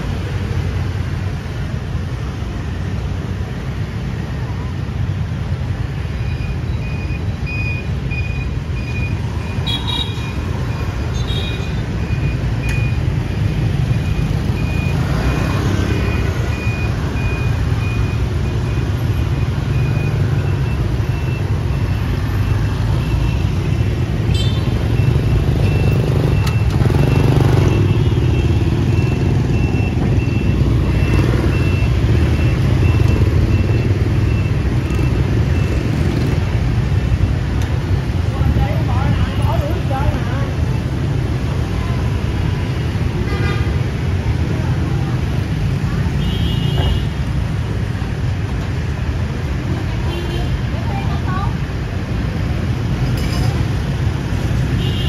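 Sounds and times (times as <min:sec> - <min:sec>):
city traffic rumble: 0:00.0 - 0:55.0
high electronic beep: 0:06.2 - 0:11.0, 0:11.7 - 0:36.3.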